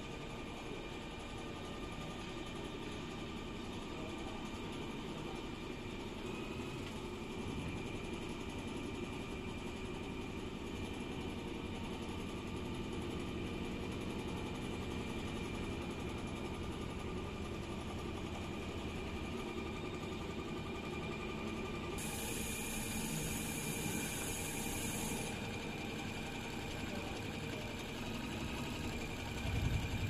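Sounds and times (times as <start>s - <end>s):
hiss: 22.0s - 25.3s
sewing machine humming: 22.0s - 30.0s.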